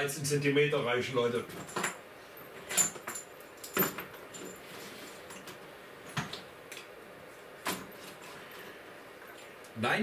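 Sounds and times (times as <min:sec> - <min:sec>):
cables rattling and rustling: 0:01.4 - 0:06.9.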